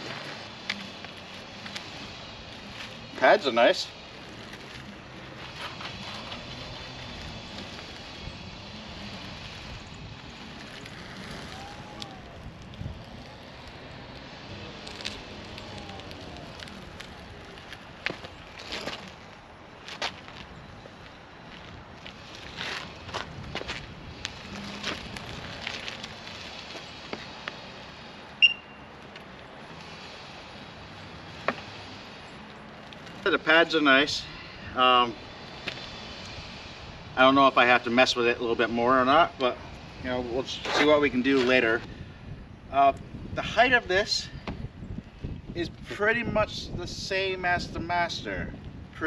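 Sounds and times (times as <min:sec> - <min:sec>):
wind on microphone: 0:04.4 - 0:26.4, 0:39.6 - 0:49.0.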